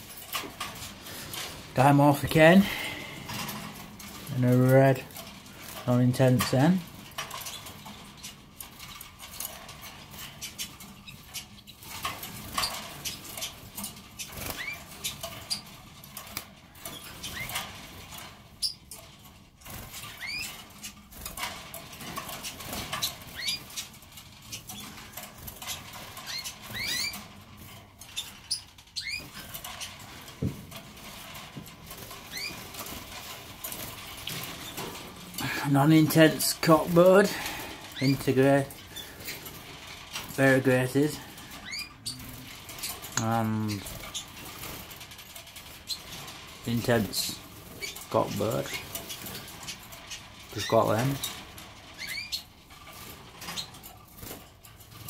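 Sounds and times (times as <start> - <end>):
birds rustling in cage: 0.0 - 55.0
canaries chirping: 0.0 - 55.0.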